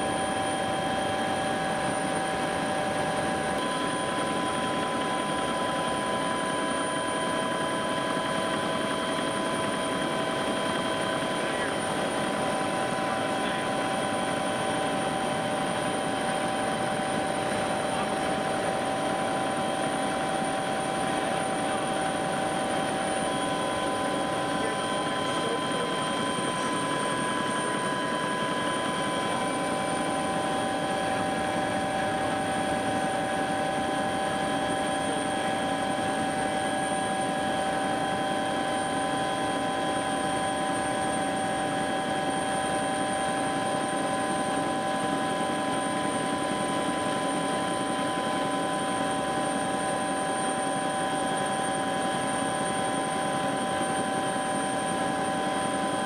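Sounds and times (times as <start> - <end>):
constant whining tones: 0.0 - 56.0
helicopter engine and rotor noise: 0.0 - 56.0.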